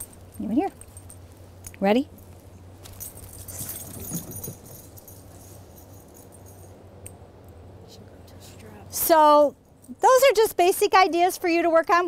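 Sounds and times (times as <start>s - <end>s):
dog collar tags jingling: 0.0s - 7.2s.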